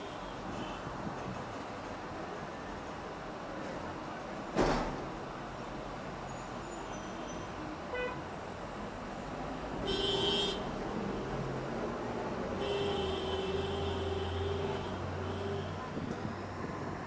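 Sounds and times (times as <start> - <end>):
traffic engine rumble: 0.0 - 17.0
vehicle horn honking: 9.9 - 10.7, 12.6 - 15.8.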